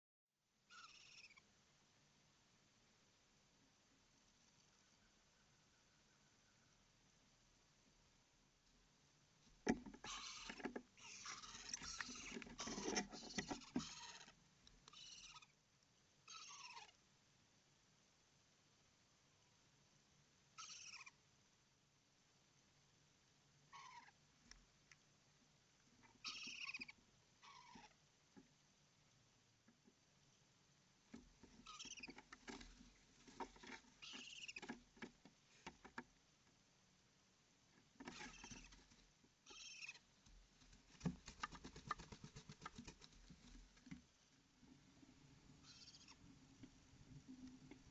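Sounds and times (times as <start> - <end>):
owlet high-pitched calls: 0.7 - 1.4, 14.9 - 15.5, 16.3 - 16.9, 20.6 - 21.1, 26.2 - 27.9, 31.6 - 32.2, 34.0 - 34.6, 39.5 - 40.0, 45.6 - 46.2
owlets scratching and rustling: 9.6 - 14.4, 31.1 - 36.0, 40.3 - 44.1.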